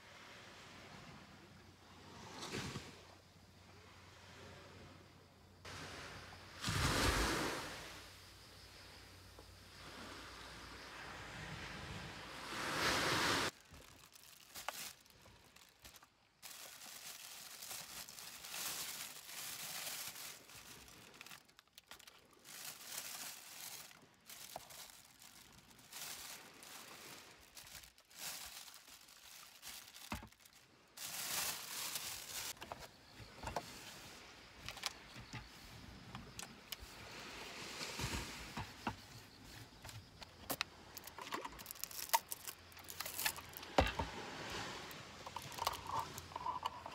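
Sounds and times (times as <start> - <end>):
waves washing on shore: 5.7 - 8.0, 11.2 - 13.6
plastic bags crinkling: 13.5 - 32.6, 41.0 - 43.8, 45.3 - 46.9.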